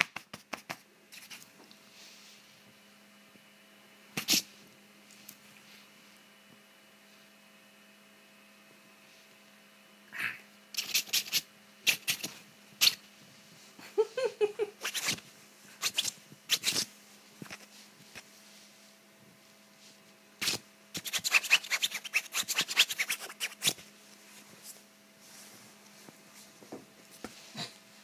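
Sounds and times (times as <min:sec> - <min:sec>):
steady low hum: 0:00.3 - 0:28.0
scratching on bedding: 0:14.8 - 0:19.0, 0:19.8 - 0:27.7.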